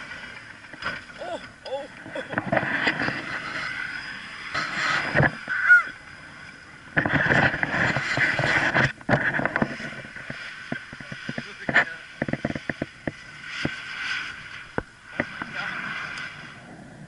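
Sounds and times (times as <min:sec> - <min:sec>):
wind on microphone: 0:06.9 - 0:17.0.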